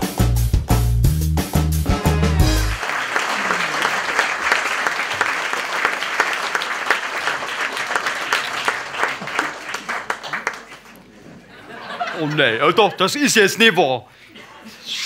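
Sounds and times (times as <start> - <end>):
audience applauding: 2.3 - 11.1.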